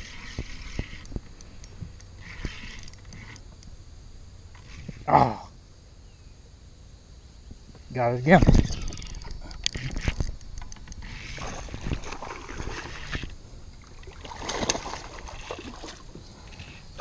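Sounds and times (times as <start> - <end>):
fishing reel clicking: 0.0 - 3.7, 8.7 - 11.4
water splashing: 11.0 - 17.0.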